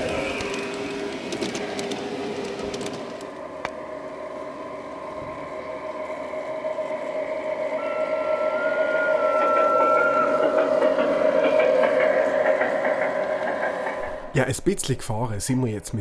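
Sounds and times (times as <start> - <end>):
model train motor hum: 0.0 - 14.3
wheels clicking over rails: 0.0 - 14.4.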